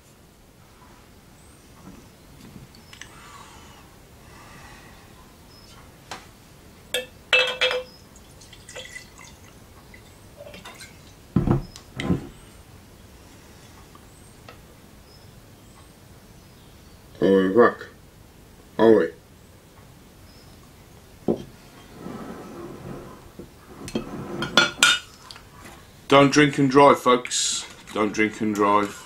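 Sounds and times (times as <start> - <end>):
glass clinking: 7.0 - 9.4, 23.9 - 25.1
drink pouring into glass: 7.0 - 10.9.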